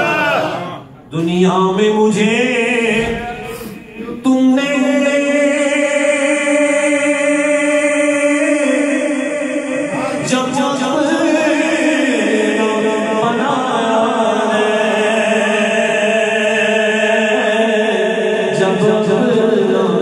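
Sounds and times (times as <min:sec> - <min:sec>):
man singing into microphone: 0:01.1 - 0:20.0.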